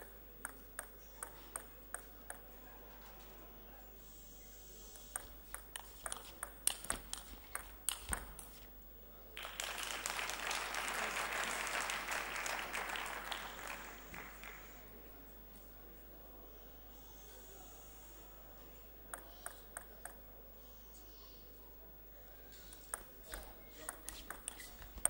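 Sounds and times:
table tennis ball clicking: 0.4 - 2.5, 5.0 - 8.5, 22.8 - 25.0
crowd applause: 9.4 - 15.0.

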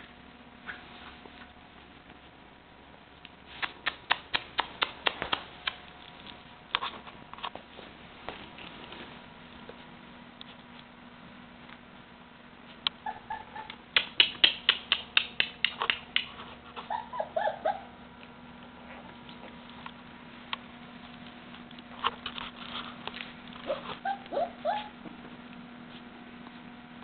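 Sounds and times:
puppies yipping and whimpering: 13.0 - 13.8, 16.8 - 18.0, 23.6 - 25.0.

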